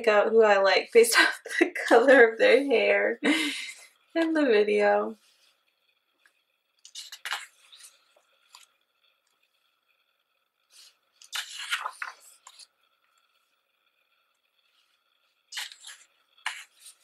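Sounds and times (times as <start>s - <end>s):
paper pages rustling: 11.2s - 12.7s.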